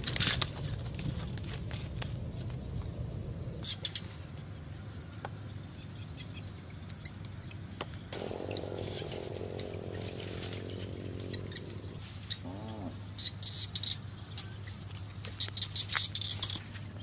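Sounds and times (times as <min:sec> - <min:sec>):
outdoor ambience: 0:00.0 - 0:17.0
small bird chirps: 0:03.1 - 0:16.6.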